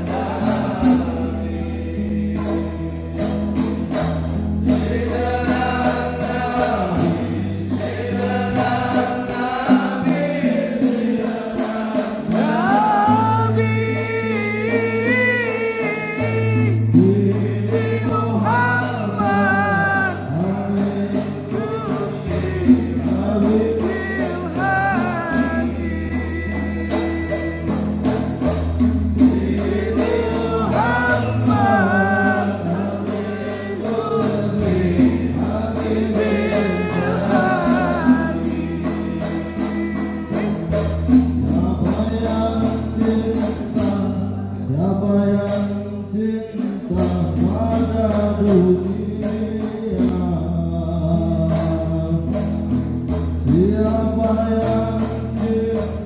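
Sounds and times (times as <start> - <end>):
voices singing: 0.0 - 50.3
jingling percussion beat: 0.0 - 50.4, 51.3 - 56.0
long held bass notes: 12.5 - 55.8.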